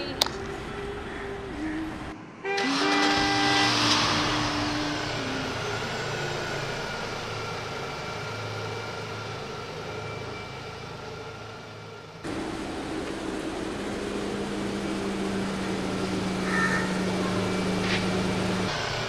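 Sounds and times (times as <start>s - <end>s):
held steady tones: 12.2s - 19.0s
motor vehicle passing: 12.2s - 19.0s.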